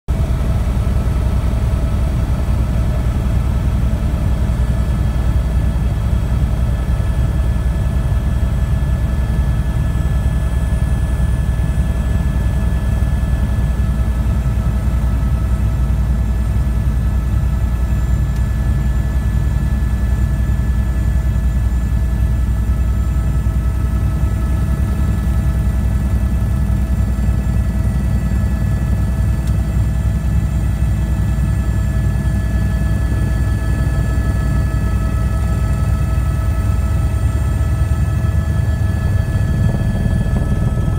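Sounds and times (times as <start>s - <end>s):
helicopter cabin drone: 0.1s - 40.9s
constant whining tones: 0.2s - 40.9s.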